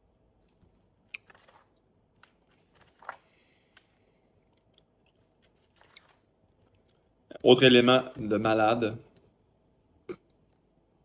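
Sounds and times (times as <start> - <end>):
page turning: 2.2 - 3.2.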